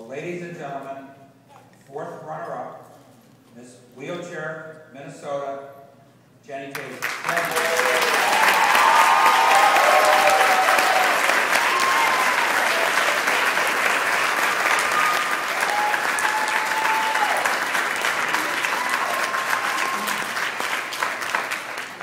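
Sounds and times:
audience applauding: 6.7s - 22.0s
voices whooping: 7.6s - 13.4s, 14.6s - 20.4s.

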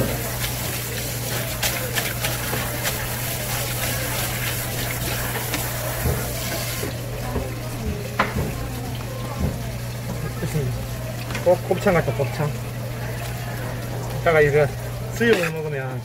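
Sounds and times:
knocks and splashes: 0.0s - 10.3s
tap water running: 0.0s - 16.0s.

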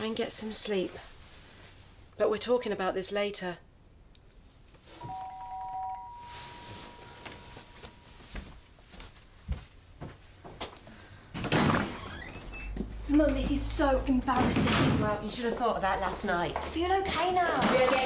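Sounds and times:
two-note electronic chime: 5.0s - 8.2s.

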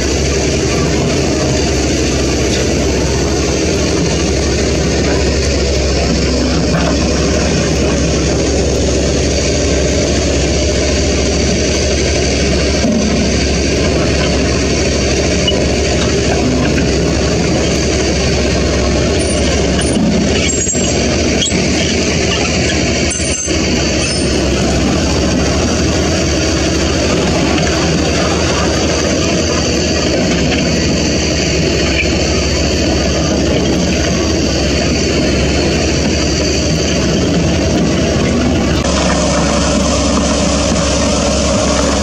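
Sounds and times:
diesel truck engines running: 0.0s - 42.0s.

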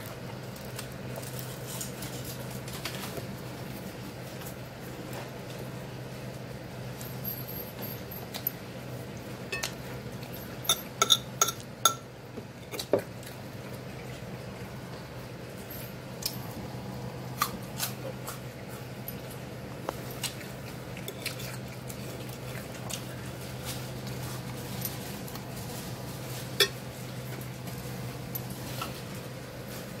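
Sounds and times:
fork clinking on plate: 10.7s - 12.0s, 26.6s - 26.8s.

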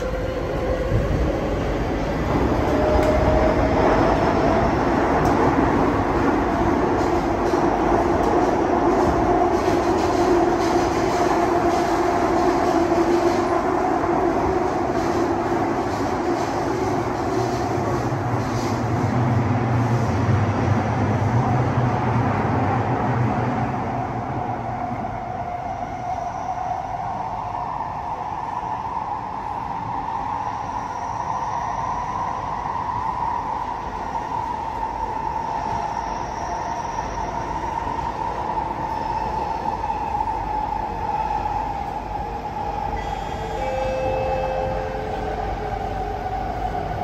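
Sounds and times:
train wheels rumbling: 0.0s - 28.4s.

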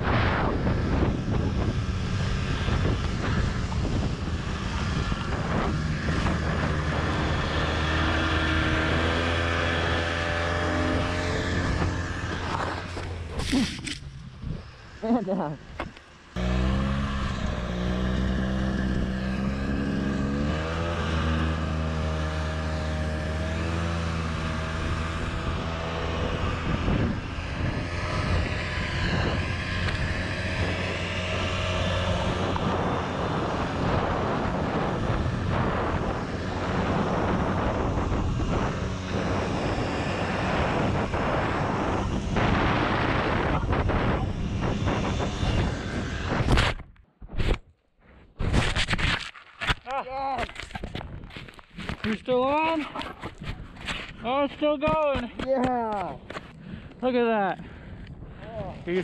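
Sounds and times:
snowmobile engine running: 0.0s - 46.9s, 49.9s - 57.8s
wind rushing: 0.0s - 47.6s
board sliding over snow: 2.1s - 14.4s.

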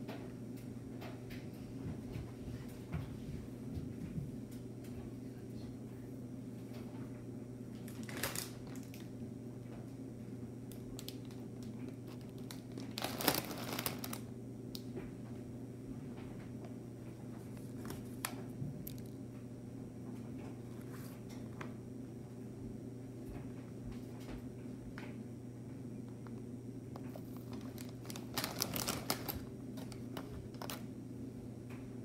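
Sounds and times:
steady low hum: 0.0s - 32.0s
plastic bag crinkling: 7.9s - 9.0s, 10.7s - 14.2s, 27.0s - 30.9s.

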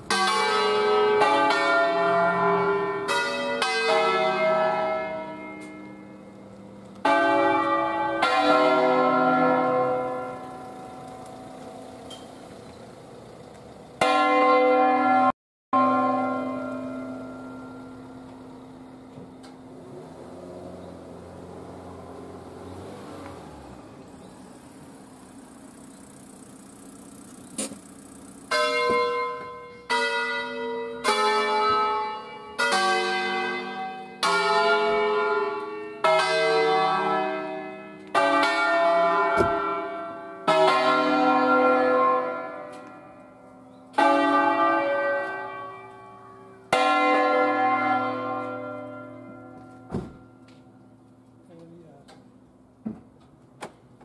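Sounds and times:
church bells pealing: 0.0s - 12.0s, 14.0s - 20.5s, 28.0s - 51.5s.

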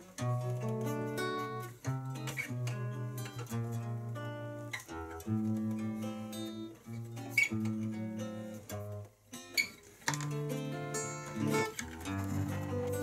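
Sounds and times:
acoustic guitar music: 0.0s - 13.0s.

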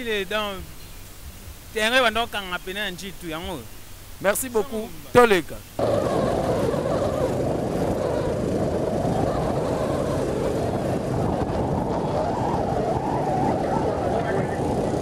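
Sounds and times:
motorcycle road noise: 5.8s - 15.0s
wind rushing over microphone: 5.8s - 15.0s.

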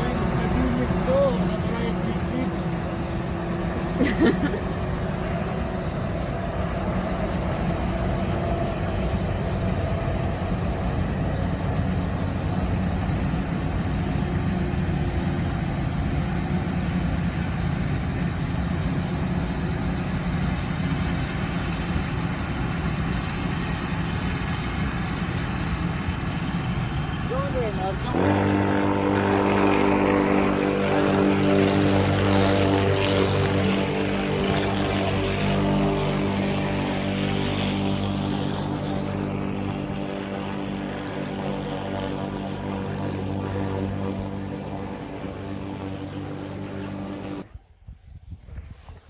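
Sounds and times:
thin high whine: 18.2s - 47.5s.

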